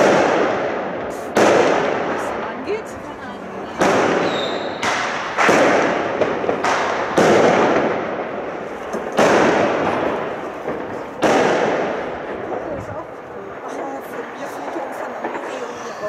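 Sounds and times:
fireworks bangs with echo: 0.0 - 16.0.

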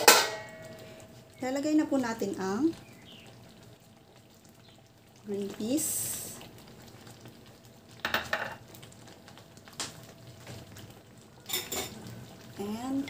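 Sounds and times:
utensil clinking against dishes: 0.0 - 0.8, 11.4 - 12.0
stew simmering: 0.0 - 13.0.

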